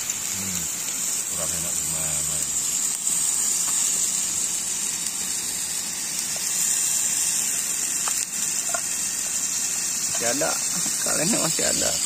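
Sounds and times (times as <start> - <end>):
gas stove hissing: 0.0 - 12.0.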